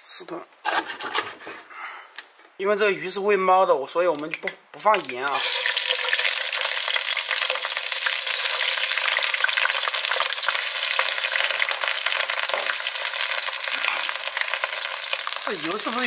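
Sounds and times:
fish sizzling in hot oil: 5.3 - 16.0.

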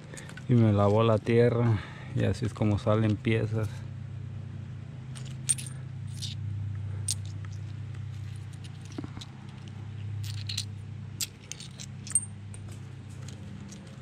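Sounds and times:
steady low hum: 0.0 - 14.0
stone flakes clinking: 5.2 - 6.4, 10.2 - 12.4.

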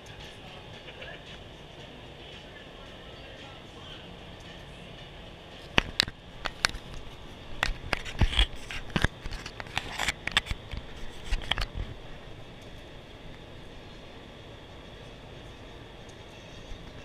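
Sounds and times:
sharp clicks and scrapes: 5.7 - 11.9.

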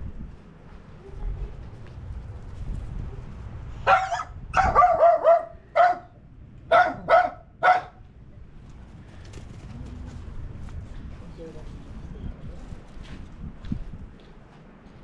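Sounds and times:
dog barking: 3.8 - 8.0.

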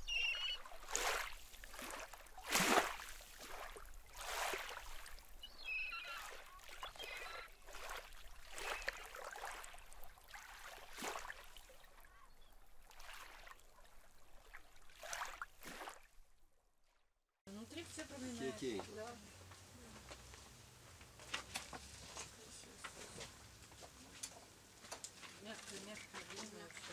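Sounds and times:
small waves washing on shore: 0.0 - 16.2.

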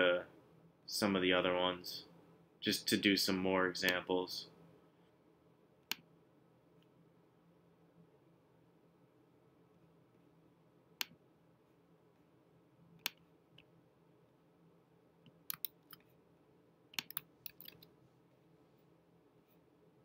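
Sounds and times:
computer mouse clicks: 13.0 - 13.7, 15.2 - 16.1, 16.9 - 17.9
keyboard key presses: 17.0 - 17.8.

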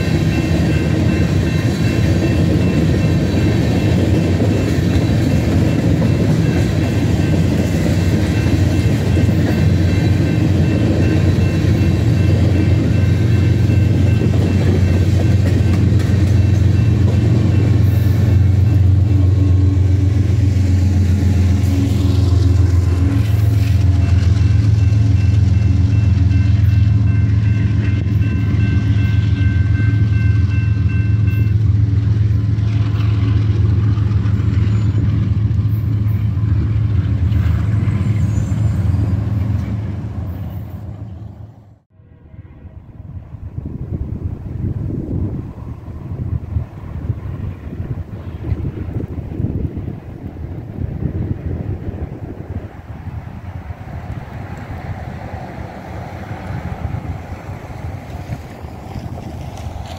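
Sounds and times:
crossing warning bells ringing: 0.0 - 41.4
train cars rolling past: 0.0 - 59.9.

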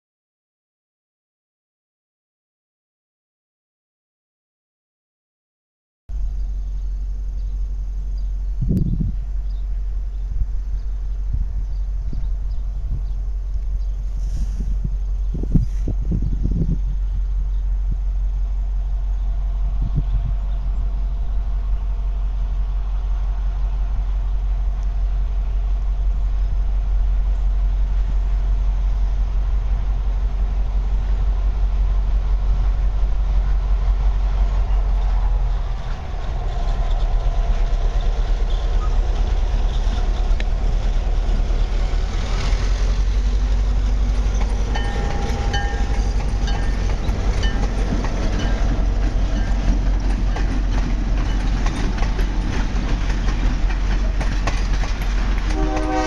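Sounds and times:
low rumble: 6.1 - 55.5
diesel locomotive running: 6.1 - 56.0
wheels squealing on rail: 34.3 - 56.0
train wheels clacking over rail joints: 34.6 - 56.0.

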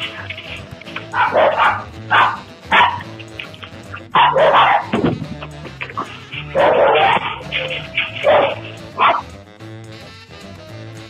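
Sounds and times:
small dogs barking: 0.0 - 9.3
background music: 0.0 - 11.0.

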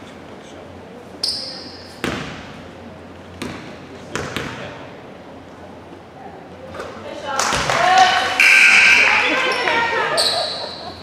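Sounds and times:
high whistle blast: 8.2 - 9.6.

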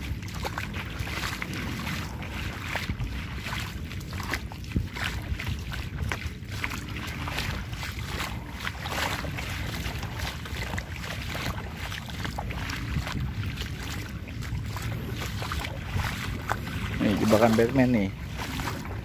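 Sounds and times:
feet wading through shallow water: 0.0 - 19.0
wind rumble on microphone: 0.0 - 19.0.

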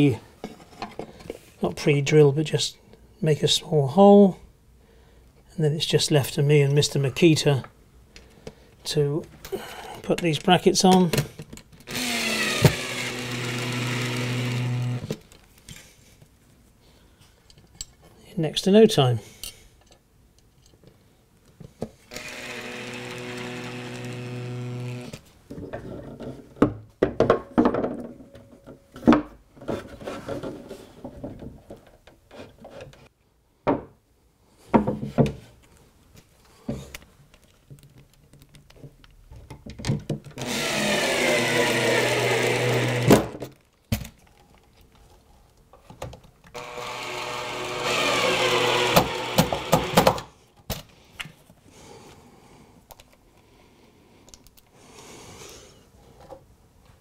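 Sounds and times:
cordless drill driving screws: 11.9 - 15.2, 22.1 - 25.2, 40.4 - 43.3, 46.5 - 50.2
knocks and clicks of handling: 36.7 - 40.4.

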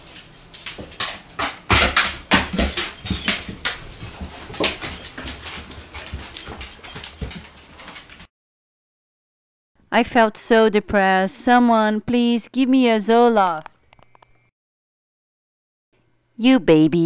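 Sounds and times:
dog claws clattering on stairs: 0.0 - 8.3.

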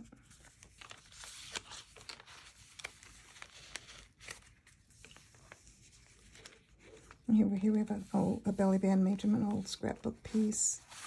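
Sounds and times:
paper rustling: 0.0 - 11.0
paper edges ticking: 0.6 - 5.6.

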